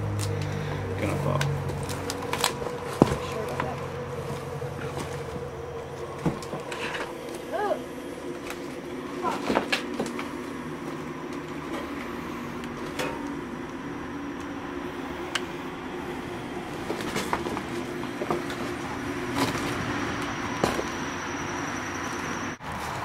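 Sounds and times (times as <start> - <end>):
steady low hum: 0.0 - 22.6
sharp cracks and creaks: 0.1 - 3.9
footsteps on broken floorboards: 1.4 - 7.4.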